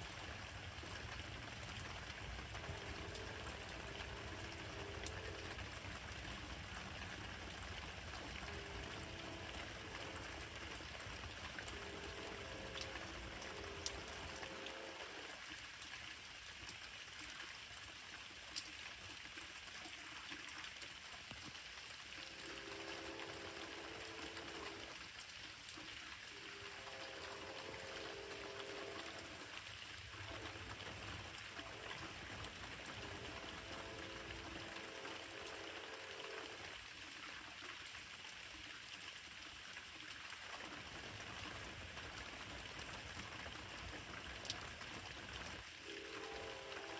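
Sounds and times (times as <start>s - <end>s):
rain hiss: 0.0s - 16.7s, 21.8s - 37.2s, 40.0s - 46.9s
locomotive horn blasts: 45.8s - 46.9s.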